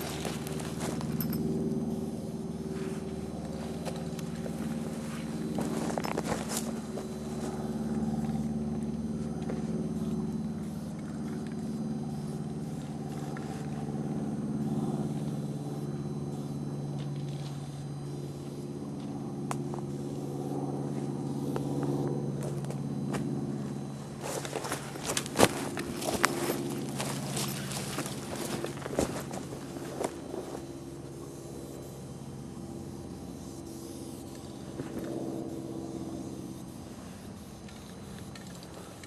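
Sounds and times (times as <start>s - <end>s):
diesel engine idling: 0.0s - 17.0s, 18.2s - 31.4s.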